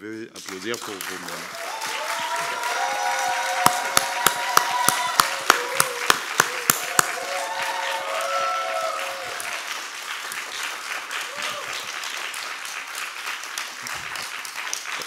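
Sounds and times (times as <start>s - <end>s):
audience applauding: 0.4s - 15.0s
sharp loud claps: 0.4s - 15.0s
people cheering: 1.2s - 12.8s.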